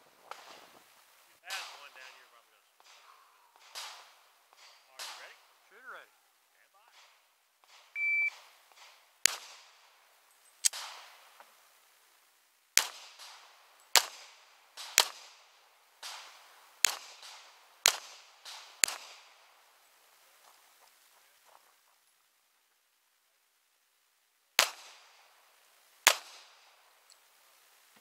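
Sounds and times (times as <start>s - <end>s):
pistol gunshots: 1.5s - 2.2s, 2.8s - 5.6s, 7.6s - 10.0s, 10.6s - 11.3s, 12.8s - 19.7s, 24.6s - 25.4s, 26.0s - 26.8s
shot timer beep: 8.0s - 8.3s.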